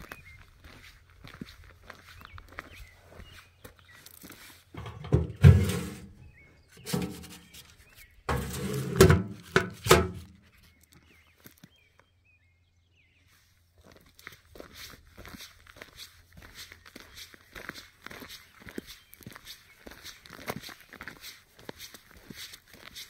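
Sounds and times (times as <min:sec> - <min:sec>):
mailbox door thunks and scrapes: 0:04.8 - 0:06.2, 0:06.8 - 0:07.7, 0:08.3 - 0:10.4.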